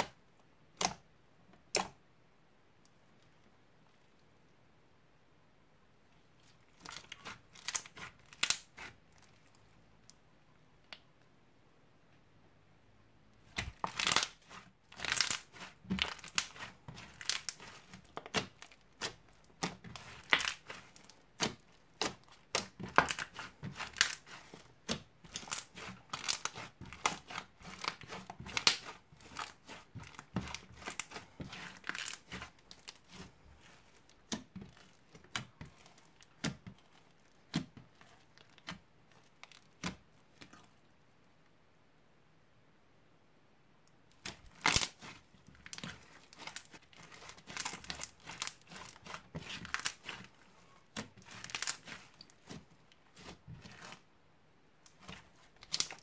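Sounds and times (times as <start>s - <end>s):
crunchy slime crackling and popping: 6.7s - 9.6s, 13.5s - 40.7s, 44.1s - 54.0s, 54.8s - 56.0s.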